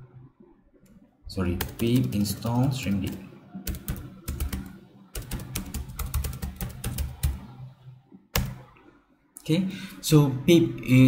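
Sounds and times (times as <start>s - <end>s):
computer keyboard typing: 1.4s - 7.6s, 8.4s - 8.7s.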